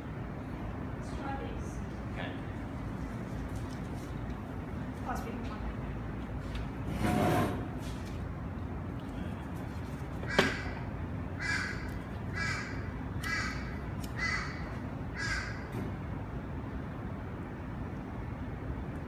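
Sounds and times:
bird calling: 10.3 - 15.7.

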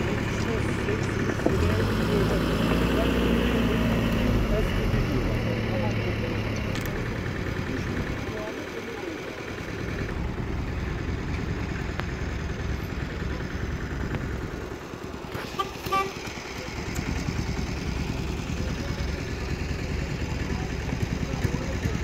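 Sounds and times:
car engines rumbling: 0.0 - 22.0
car horn toot: 15.4 - 16.3.

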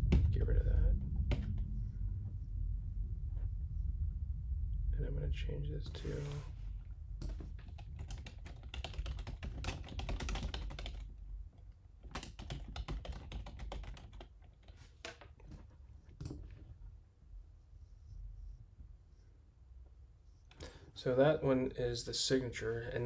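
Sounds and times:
computer keyboard typing: 7.2 - 11.1, 12.0 - 14.8.

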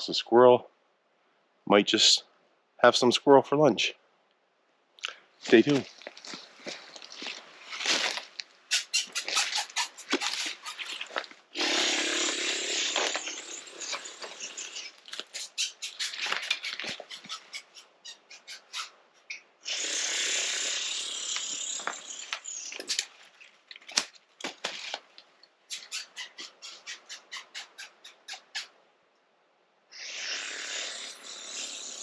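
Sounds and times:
branches scraping along clothing: 5.4 - 17.8, 20.4 - 27.0
twigs snapping and crackling: 21.4 - 25.3.

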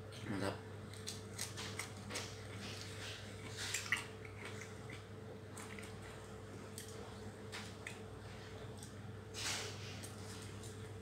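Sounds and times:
steady low hum: 0.0 - 11.0
person chewing food: 0.8 - 9.0.

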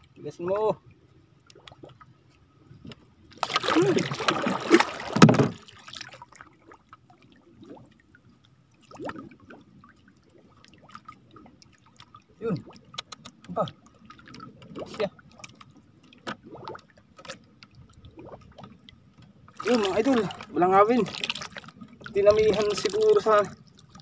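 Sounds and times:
water splashing against canoe: 2.8 - 8.0, 10.5 - 24.0.

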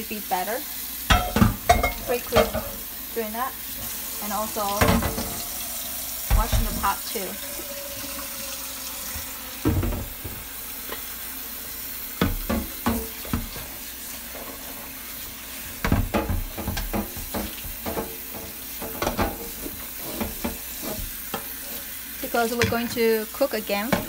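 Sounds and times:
tap water running into pot: 0.0 - 24.0
pot clanking against sink: 1.1 - 2.9, 4.6 - 5.6, 6.2 - 8.1, 9.1 - 11.1, 12.2 - 13.7, 15.8 - 21.6, 22.5 - 23.1
sponge scrubbing pot: 1.1 - 24.0.

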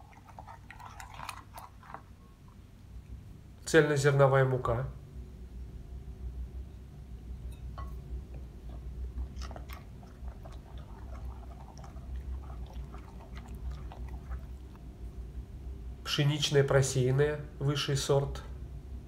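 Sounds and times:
low steady hum: 0.0 - 19.0
spoon stirring wet dough: 7.5 - 14.8.

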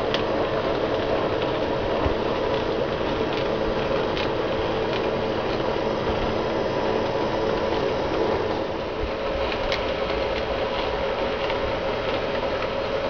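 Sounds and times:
model train motor humming: 0.0 - 13.0
faint clicks of model train: 9.5 - 13.0.

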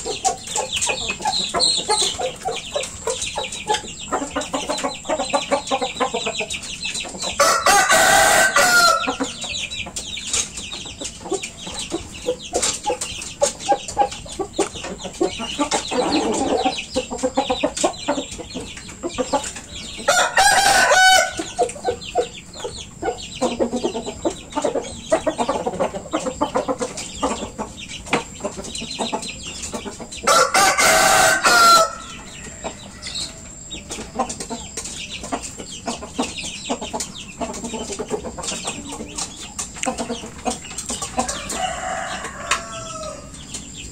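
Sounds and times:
roosters crowing: 7.2 - 9.8, 15.6 - 16.9, 19.6 - 22.0, 30.1 - 35.1, 40.1 - 43.9
soft clucking: 32.0 - 43.9.

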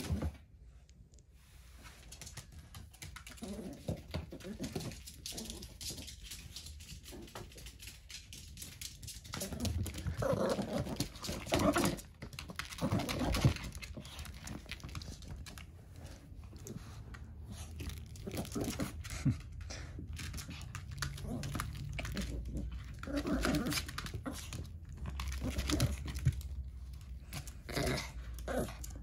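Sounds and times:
dog shaking plush toy: 2.0 - 15.4.

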